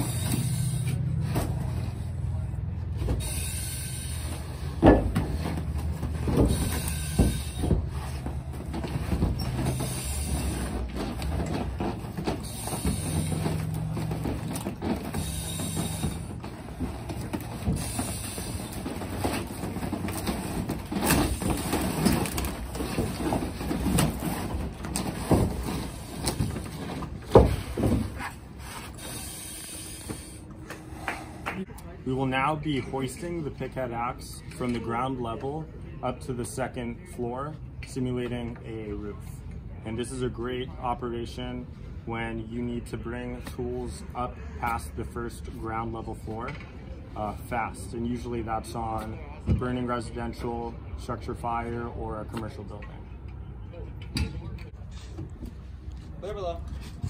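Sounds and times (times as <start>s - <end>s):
breathing through mask hiss: 29.0s - 31.4s.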